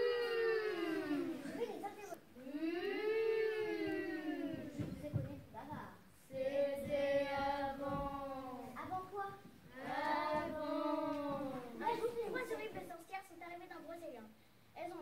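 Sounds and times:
children singing long notes: 0.0 - 1.6, 2.4 - 5.0, 9.7 - 11.8.

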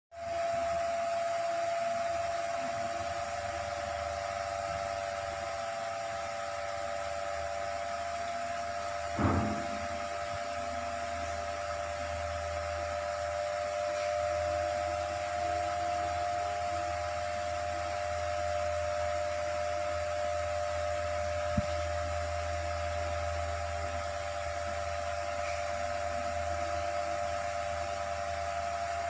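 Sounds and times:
electric motor humming and whining: 0.2 - 29.0
short knock: 9.2 - 10.0.

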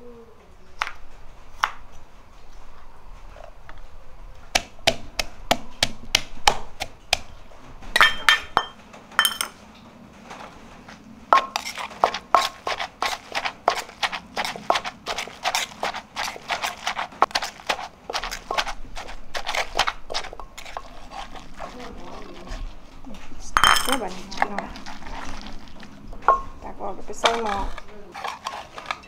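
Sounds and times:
wooden pestle pounding in a mortar: 4.5 - 7.3, 11.4 - 22.6, 27.2 - 29.0.

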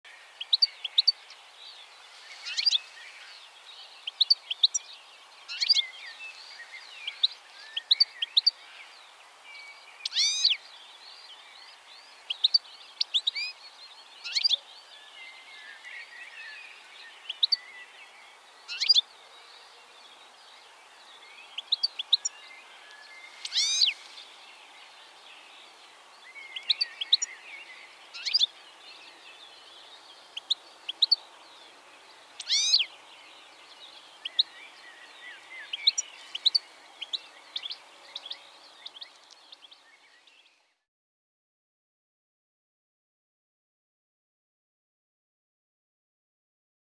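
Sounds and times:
faint steady hiss: 0.1 - 40.8
goldfinch chirping: 0.4 - 1.4, 2.3 - 3.3, 3.9 - 4.9, 5.5 - 8.8, 10.0 - 10.6, 12.0 - 14.6, 15.4 - 18.0, 18.6 - 19.1, 21.5 - 24.0, 26.2 - 31.7, 32.4 - 39.8.

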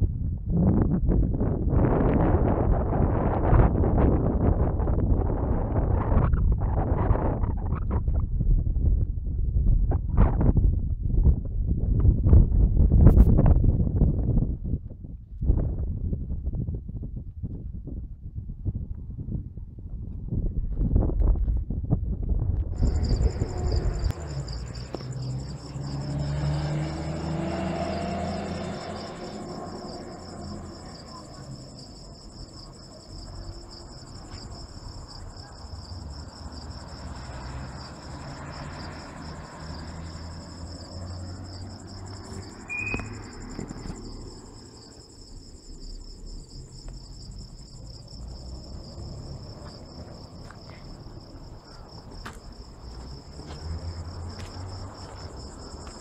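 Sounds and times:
low rumble with rising tone: 0.0 - 56.0
crickets chirping: 22.7 - 56.0.

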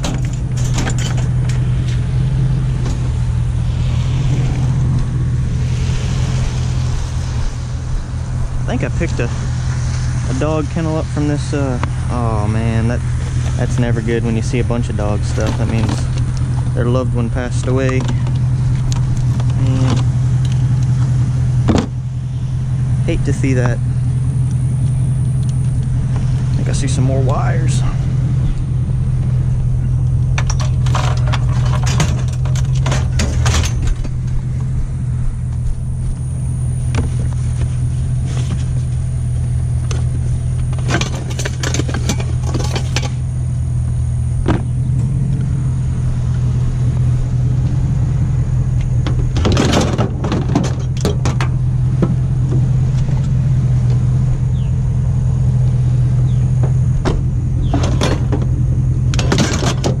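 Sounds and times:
truck engine droning: 0.0 - 60.0.

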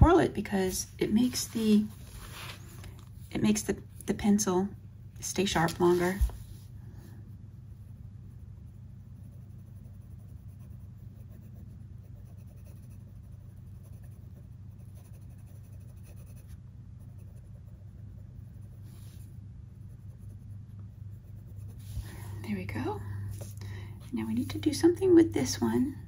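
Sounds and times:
steady low hum: 0.0 - 26.0
pencil scratching on paper: 5.3 - 6.5, 8.6 - 22.4.

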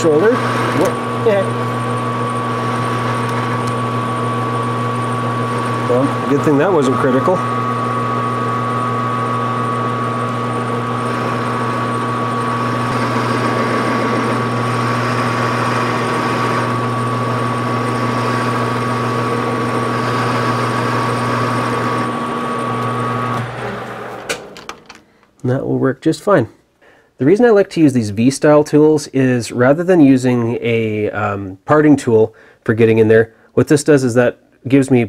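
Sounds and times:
lathe motor hum and whine: 0.0 - 25.0
lathe tool cutting metal: 0.0 - 25.0.

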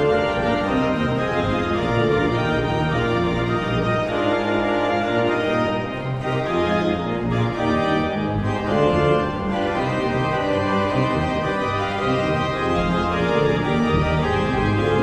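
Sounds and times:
organ chords: 0.0 - 15.0.

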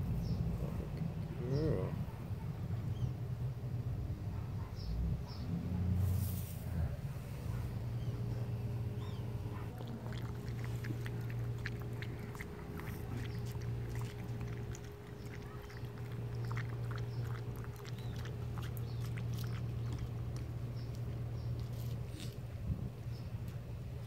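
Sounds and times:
steady low hum: 0.0 - 24.0
dog lapping from bowl: 9.6 - 21.4.

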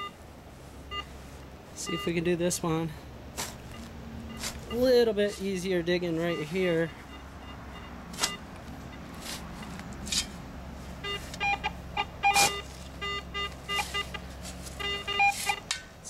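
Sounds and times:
metal detector beeping: 0.9 - 1.1, 1.8 - 2.2, 3.6 - 9.8, 11.0 - 15.8
shovel striking turf: 3.4 - 3.8, 4.4 - 5.6, 8.1 - 8.4, 9.1 - 10.4, 12.3 - 13.0, 13.7 - 15.9.

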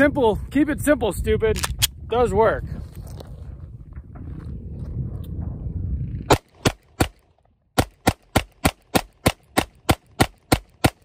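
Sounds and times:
pistol shots: 6.3 - 11.0.

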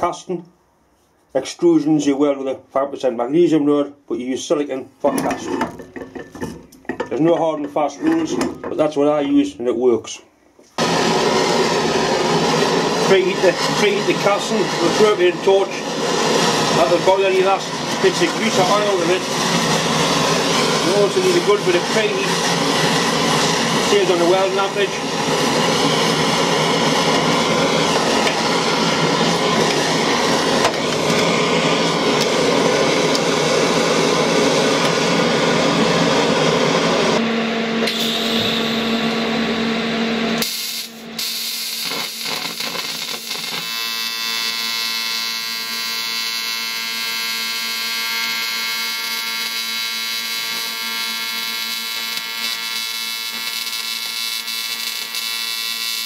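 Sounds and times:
torch flame rushing: 10.8 - 37.2
welding arc buzzing: 10.8 - 37.2, 37.8 - 56.0.

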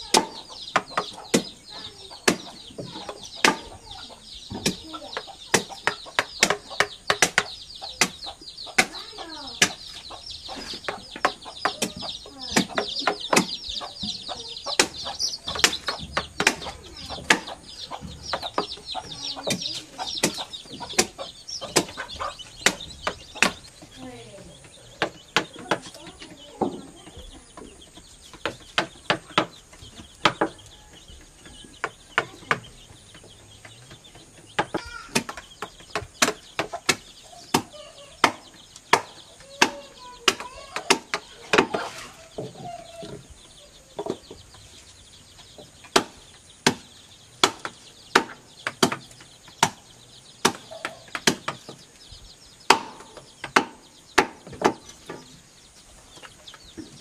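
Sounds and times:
hens clucking: 0.0 - 57.0
machete chopping wood: 0.1 - 1.6, 3.4 - 3.8, 5.5 - 9.9, 11.2 - 13.6, 14.7 - 17.6, 20.2 - 23.6, 45.9 - 49.0, 50.4 - 51.5, 52.7 - 54.8.

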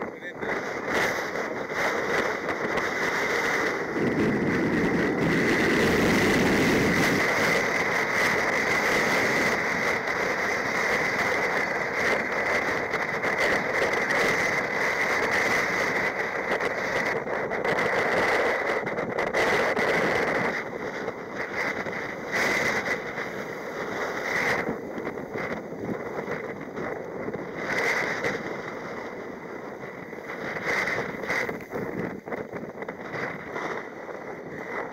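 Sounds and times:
surf breaking on rocky shore: 0.0 - 34.9
wind on microphone: 0.0 - 34.9.

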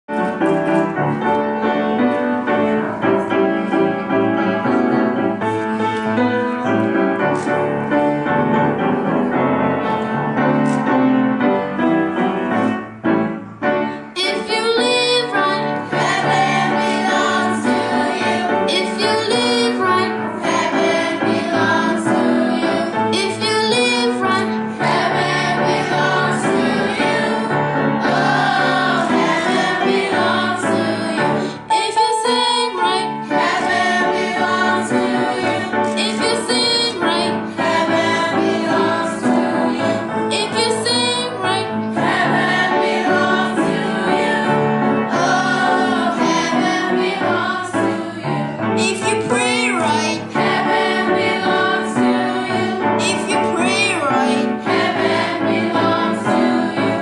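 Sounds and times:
piano playing: 0.0 - 57.0
youth choir singing: 14.1 - 57.0.

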